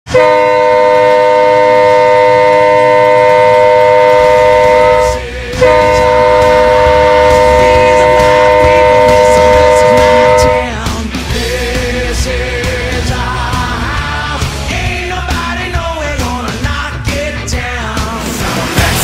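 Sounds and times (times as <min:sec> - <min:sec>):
goal horn blasts: 0:00.1 - 0:10.8.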